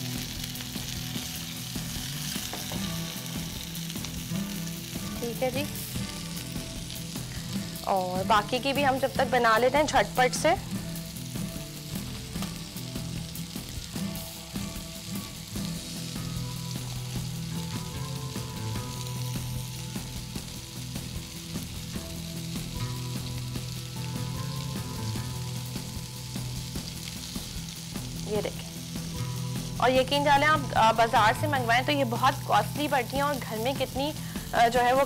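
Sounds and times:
food sizzling in oil: 0.0 - 35.0.

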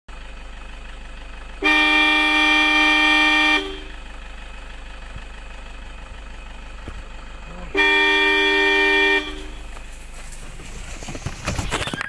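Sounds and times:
low engine hum: 0.1 - 12.0
vehicle horn blast: 1.6 - 4.0, 7.6 - 9.7.

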